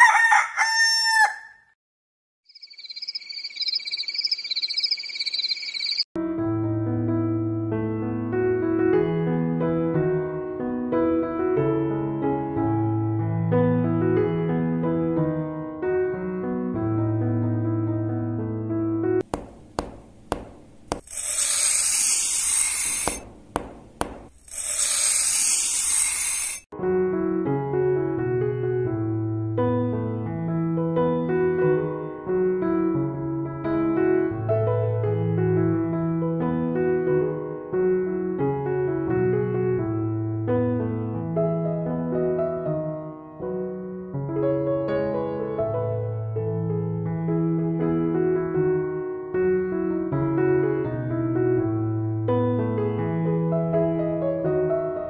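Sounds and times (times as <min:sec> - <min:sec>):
rooster crowing: 0:00.0 - 0:01.7
spray bottle hissing: 0:19.4 - 0:26.6.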